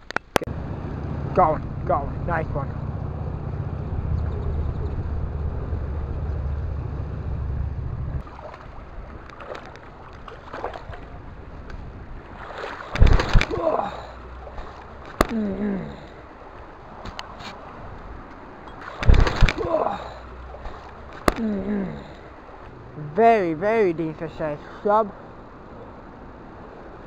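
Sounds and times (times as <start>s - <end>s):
steady low rumble: 0.5s - 12.4s.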